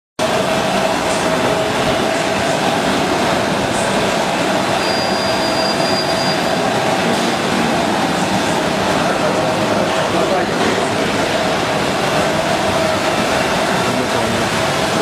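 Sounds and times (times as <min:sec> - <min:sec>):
faint high whine: 0:03.8 - 0:07.1
popcorn machine running: 0:06.4 - 0:15.0.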